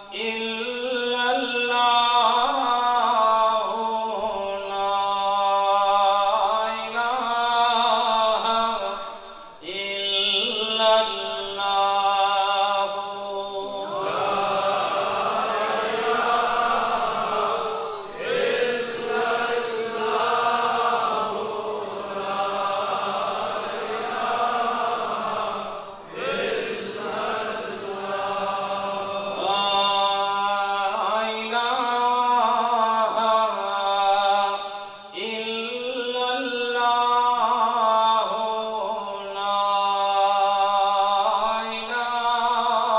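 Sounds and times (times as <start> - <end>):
men chanting in unison: 0.0 - 42.9
lead voice chanting: 10.3 - 30.5.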